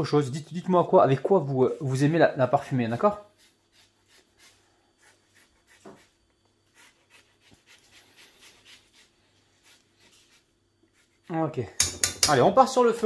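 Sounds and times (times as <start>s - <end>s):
zester scraping orange peel: 2.6s - 11.4s.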